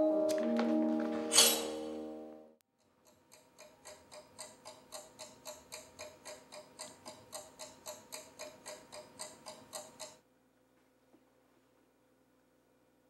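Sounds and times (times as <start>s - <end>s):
faint clock-like ticking: 2.8s - 10.2s.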